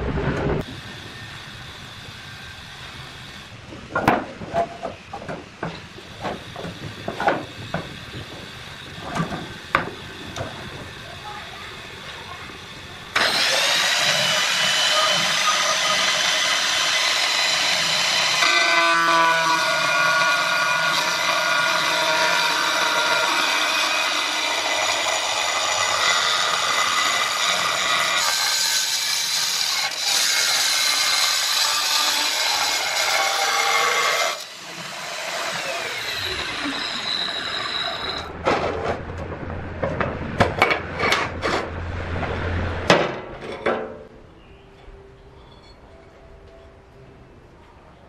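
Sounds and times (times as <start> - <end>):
sharp knocks and clatters: 3.7 - 10.6
power tool running: 7.4 - 38.3.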